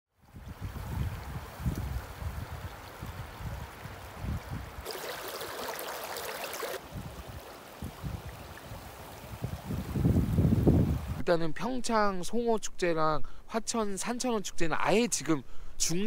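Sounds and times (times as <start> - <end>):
wind buffeting microphone: 0.3 - 5.0, 6.8 - 11.2
river water running over rocks: 0.6 - 10.2.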